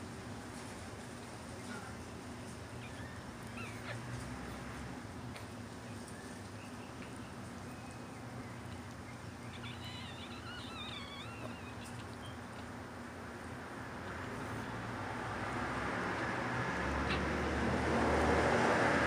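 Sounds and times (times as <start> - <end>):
puppy squeaking: 2.8 - 4.0, 9.4 - 12.7.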